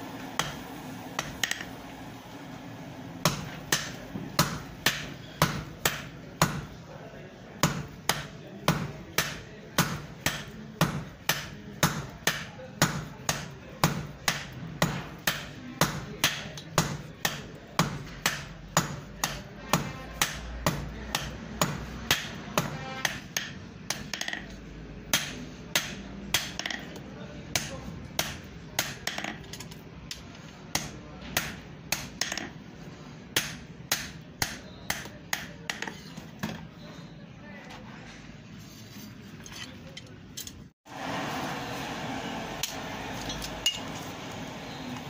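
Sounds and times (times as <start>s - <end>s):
hammer striking iron on anvil: 0.4s - 0.6s, 1.2s - 1.7s, 3.2s - 6.7s, 7.6s - 24.5s, 25.1s - 26.8s, 27.6s - 29.4s, 30.1s - 32.6s, 33.3s - 36.6s, 42.6s - 43.9s.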